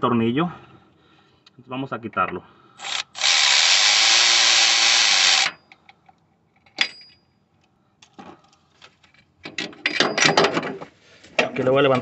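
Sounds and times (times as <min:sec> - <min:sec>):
power tool spinning a bolt: 0:02.8 - 0:05.6.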